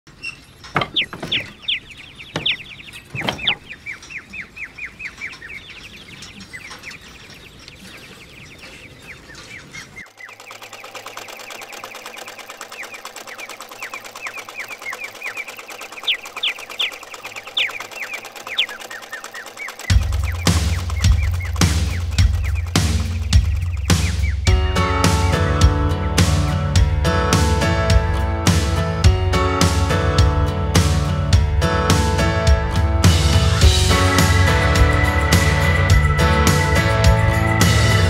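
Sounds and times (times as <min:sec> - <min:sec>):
small birds chirping: 0:00.1 - 0:26.6, 0:33.1 - 0:38.0.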